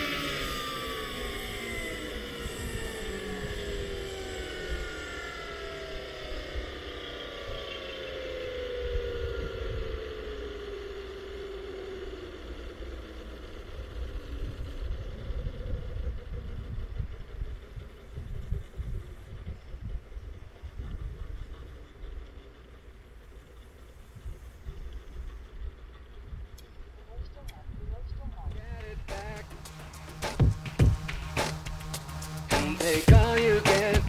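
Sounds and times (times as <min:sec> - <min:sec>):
helicopter motor whine falling: 0:00.0 - 0:34.0
low rumble: 0:23.0 - 0:34.0.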